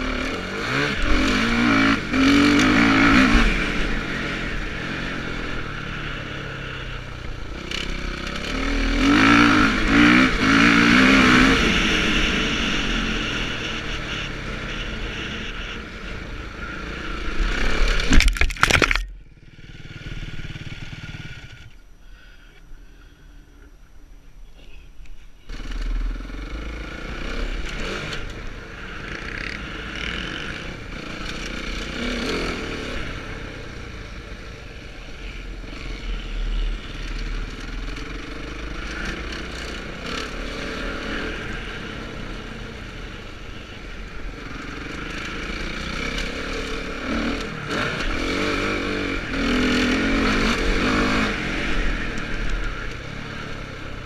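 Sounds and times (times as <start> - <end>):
motocross bike engine revving: 0.0 - 6.9, 7.5 - 18.3, 35.7 - 43.2, 43.8 - 54.0.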